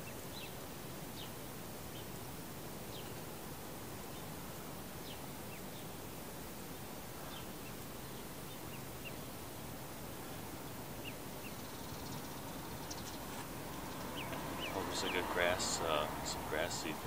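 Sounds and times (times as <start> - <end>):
outdoor background hiss: 0.0 - 17.0
ducklings peeping: 11.0 - 17.0.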